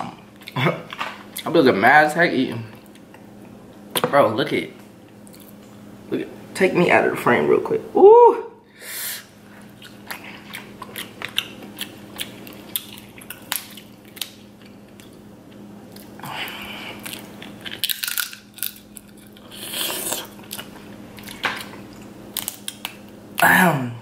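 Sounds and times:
crab shells cracking: 0:09.9 - 0:16.1, 0:17.0 - 0:23.2.

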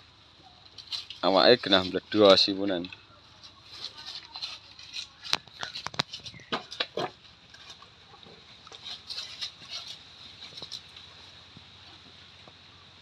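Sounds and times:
cattle knocks and clicks: 0:00.7 - 0:12.6
cattle scuffing: 0:00.7 - 0:12.6.

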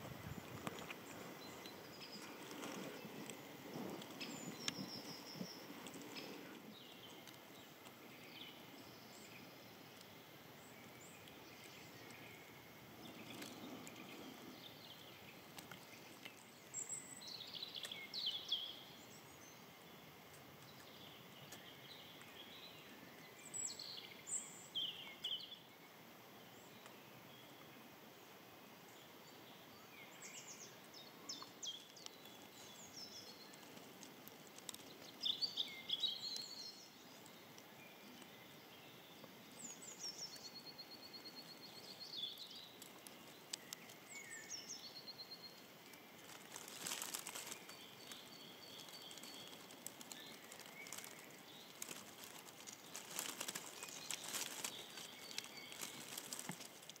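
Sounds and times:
rustling hiss: 0:00.0 - 0:57.0
small birds chirping and whistling: 0:34.6 - 0:56.9.

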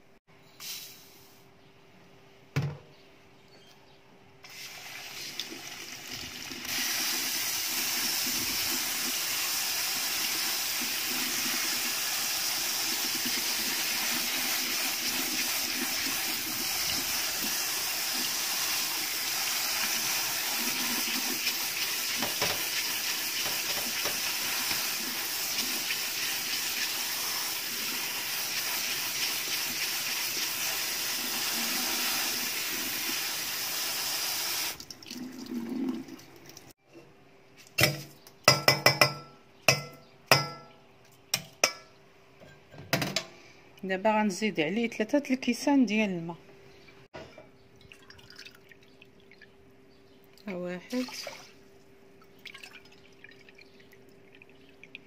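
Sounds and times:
tap water running through rice: 0:04.4 - 0:36.7
water splashing into metal sink: 0:50.9 - 0:51.6.

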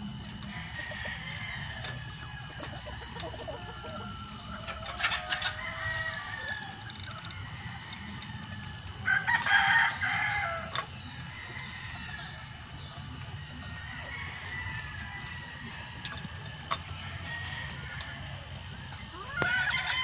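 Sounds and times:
hens clucking: 0:00.4 - 0:08.3, 0:15.6 - 0:20.0
rooster crowing: 0:00.5 - 0:12.4, 0:13.7 - 0:16.0, 0:16.9 - 0:20.0.

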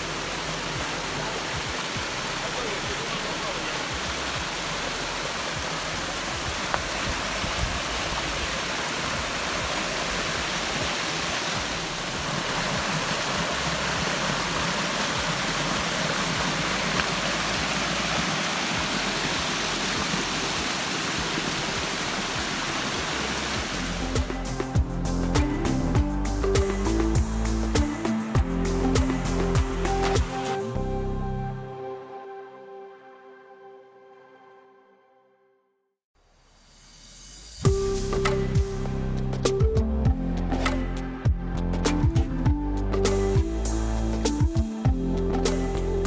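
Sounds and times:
water rushing over rocks: 0:00.0 - 0:24.6.

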